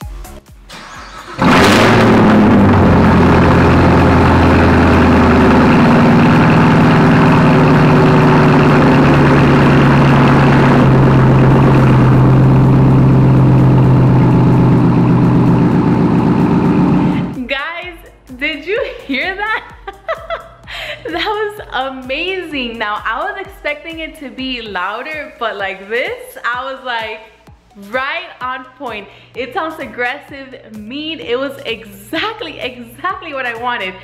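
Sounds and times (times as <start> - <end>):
car engine revving and idling: 0.7 - 17.4.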